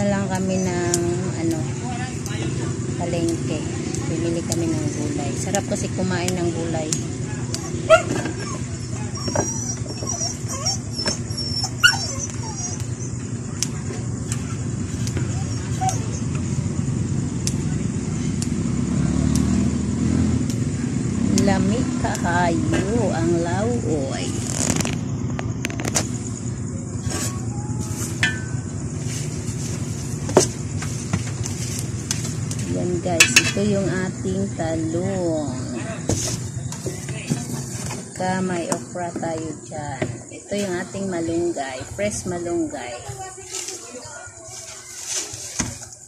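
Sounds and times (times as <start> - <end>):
low background rumble: 0.0 - 43.3
dog whimpering and yipping: 7.6 - 13.3, 14.3 - 16.4
beans snapping: 17.4 - 17.7, 19.2 - 19.6.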